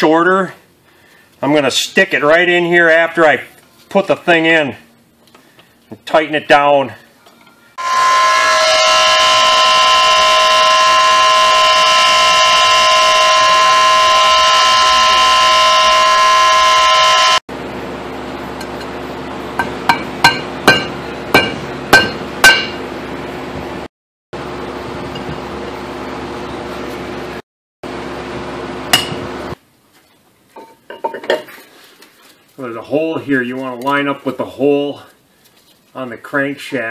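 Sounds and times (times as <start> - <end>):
grinder whine: 7.8 - 23.7.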